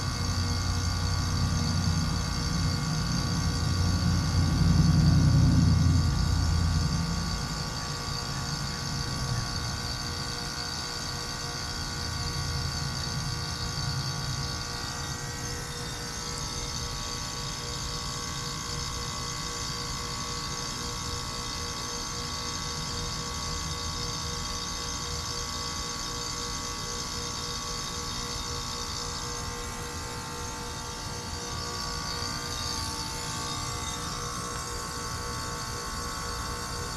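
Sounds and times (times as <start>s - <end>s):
heat pump humming: 0.0s - 36.9s
low rumble: 3.7s - 7.8s.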